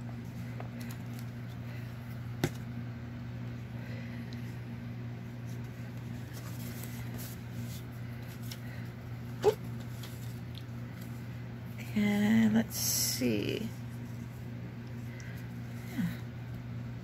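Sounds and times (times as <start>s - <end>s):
paper strips rustling: 5.4s - 11.2s.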